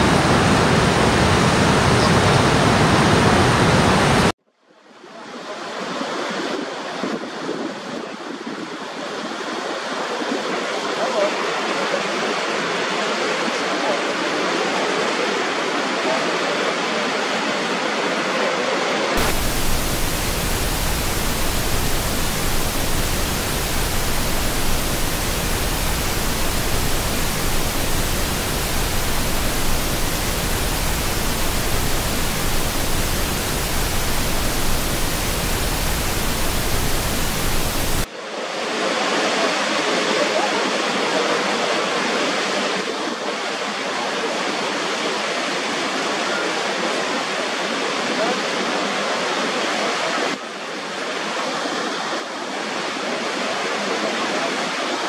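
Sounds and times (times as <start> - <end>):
waterfall roaring: 0.0 - 4.3, 19.2 - 38.1.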